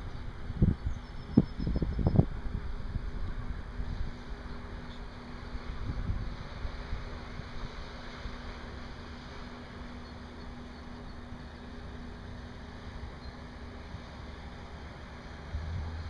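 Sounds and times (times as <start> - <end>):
ship diesel engine humming: 0.0 - 16.0.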